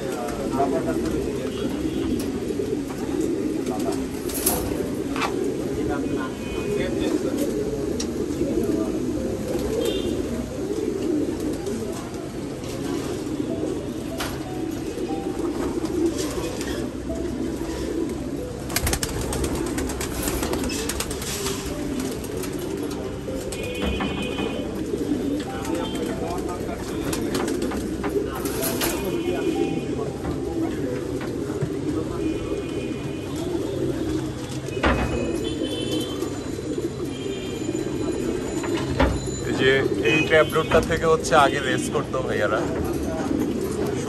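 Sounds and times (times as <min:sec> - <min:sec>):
pigeons cooing: 0:00.0 - 0:44.0
wings flapping against wire: 0:18.7 - 0:22.8.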